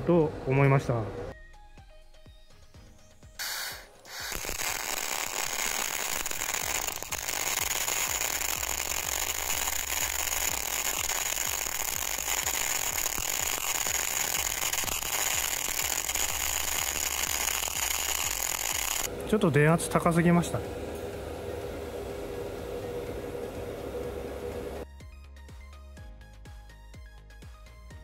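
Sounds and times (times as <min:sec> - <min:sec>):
welding arc crackling and hissing: 0:03.4 - 0:19.1
person talking: 0:19.1 - 0:20.7.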